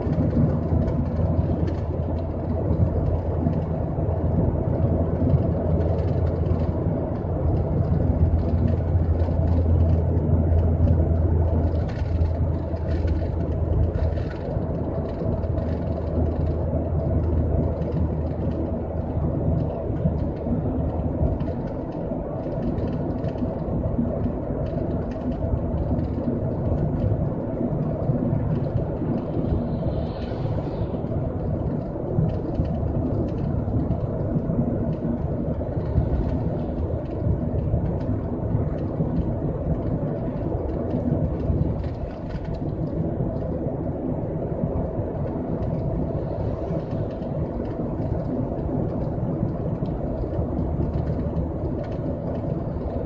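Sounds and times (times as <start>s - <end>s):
low drone: 0.0s - 53.0s
road and engine noise in car: 0.0s - 53.0s.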